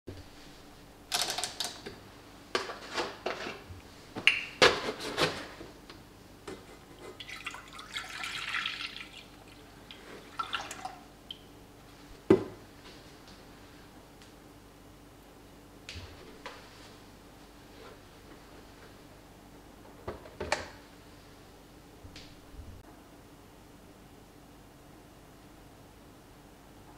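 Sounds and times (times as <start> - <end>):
milk pouring into a saucepan: 7.2 - 11.1.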